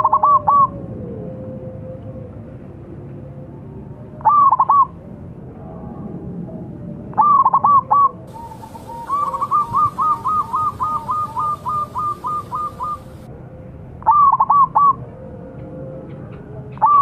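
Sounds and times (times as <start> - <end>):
dove cooing: 0.0 - 0.7, 4.2 - 4.9, 7.2 - 13.3, 14.1 - 15.0, 16.8 - 17.0.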